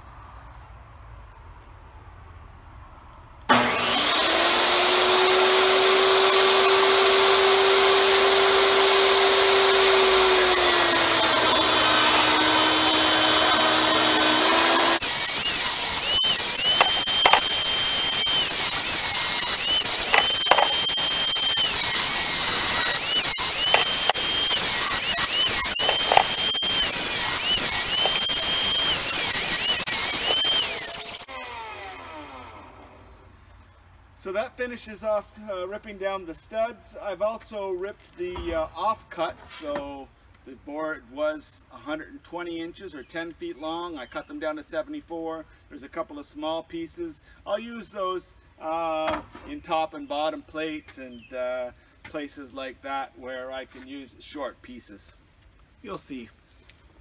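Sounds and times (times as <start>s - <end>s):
table saw ripping boards: 3.5s - 32.1s
table saw running: 3.5s - 33.1s.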